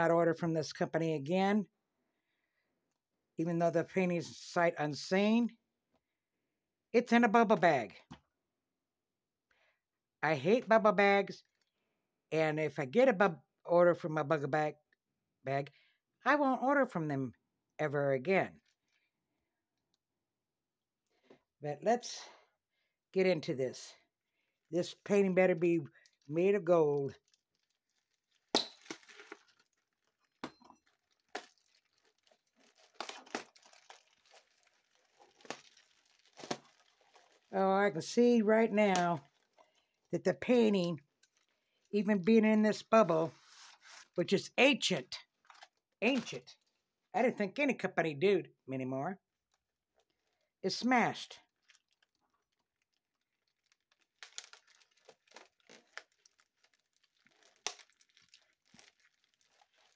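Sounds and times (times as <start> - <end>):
bubble wrap crinkling: 24.8 - 42.2, 51.3 - 59.9
plastic mailer tearing: 27.2 - 37.6, 53.6 - 59.9.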